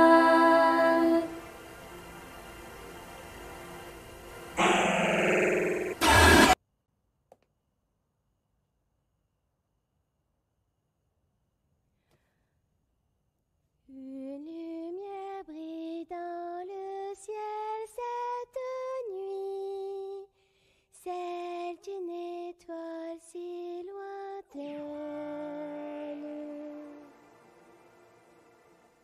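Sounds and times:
girl singing a lullaby: 0.0s - 1.4s, 13.9s - 27.3s.

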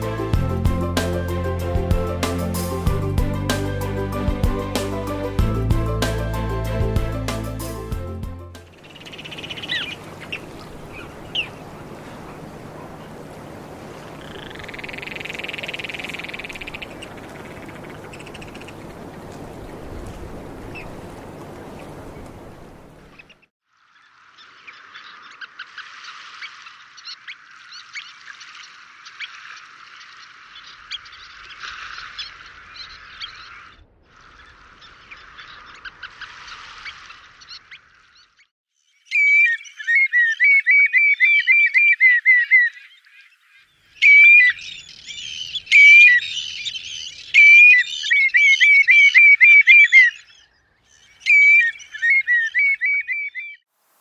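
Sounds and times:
bird piping calls: 8.6s - 20.0s, 20.6s - 21.0s, 21.7s - 33.7s, 34.3s - 53.6s
flock of birds twittering: 8.7s - 53.6s.

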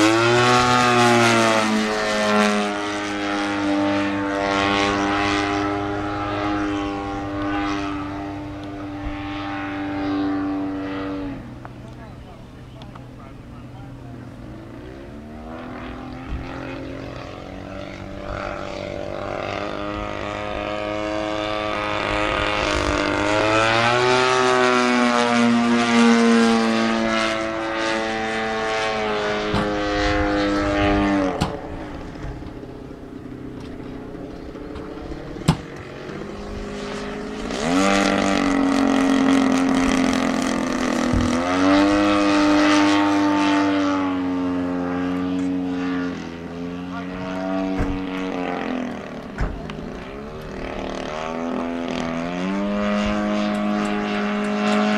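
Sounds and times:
model plane engine buzzing: 0.0s - 54.9s.

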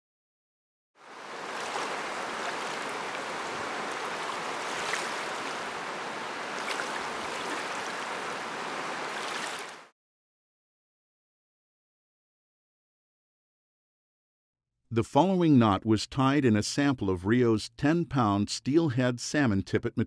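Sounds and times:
river water rushing over rocks: 1.0s - 9.9s
water splashes: 1.0s - 9.9s.

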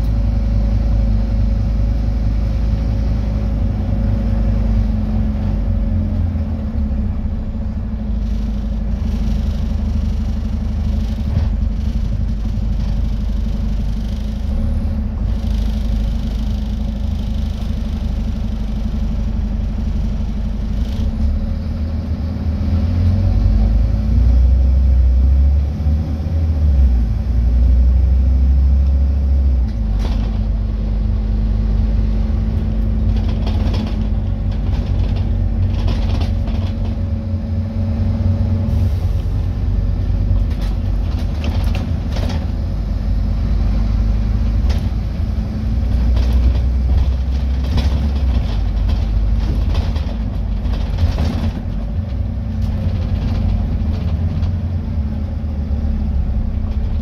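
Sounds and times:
bus engine drone: 0.0s - 57.0s
road noise: 0.0s - 57.0s
rattles and knocks from bus body: 8.1s - 21.4s, 29.2s - 43.0s, 43.8s - 57.0s.

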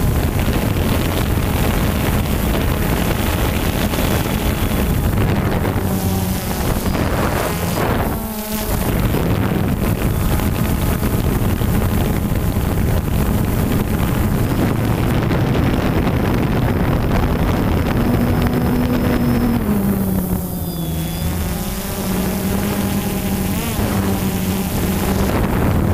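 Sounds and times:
drone propellers buzzing: 0.0s - 25.9s
wind rushing over microphone: 0.0s - 25.9s.

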